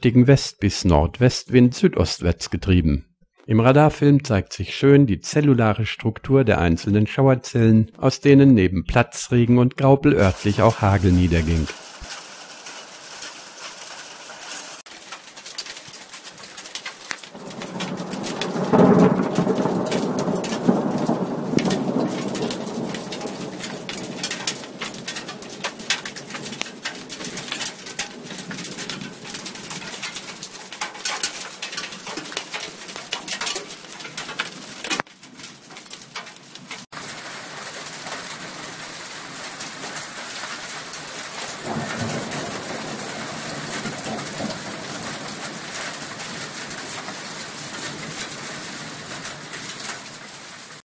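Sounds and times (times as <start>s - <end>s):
thunder rumbling: 10.1s - 13.0s, 17.2s - 34.8s, 41.2s - 50.8s
hail pelting down: 10.1s - 50.8s.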